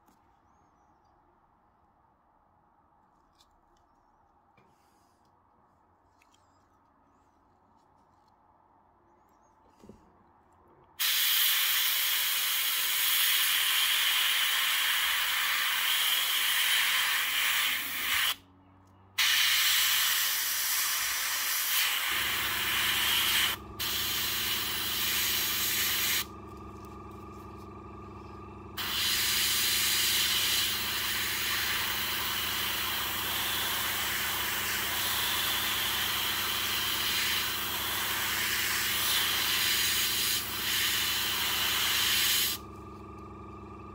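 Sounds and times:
airbrush air hiss: 11.0 - 18.4, 19.2 - 26.3, 28.8 - 42.6
air compressor motor hum: 19.2 - 43.9.

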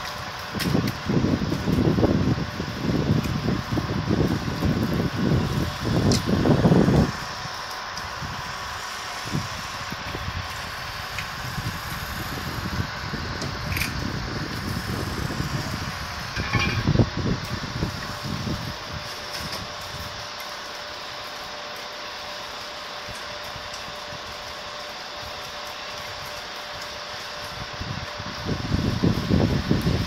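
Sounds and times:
fire engine running: 0.0 - 30.0
knocks and clanks: 16.4 - 16.9.

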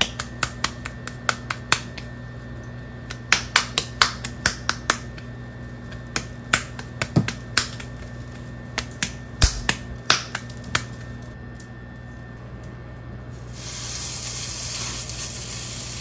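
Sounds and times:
wet slaps of meat between palms: 0.0 - 2.1, 3.1 - 5.3, 5.9 - 8.0, 8.8 - 11.0.

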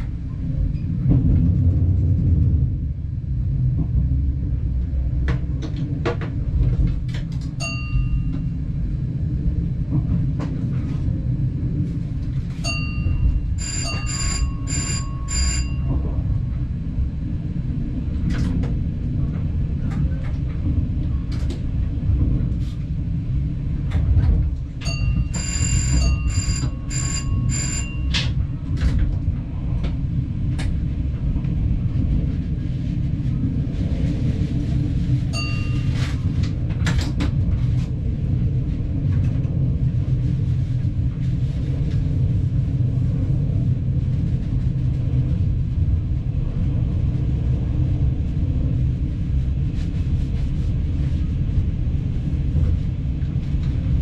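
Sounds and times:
train rumbling: 0.0 - 54.0
ringing bell-like pips: 12.7 - 15.9, 24.8 - 28.2, 35.4 - 36.0.

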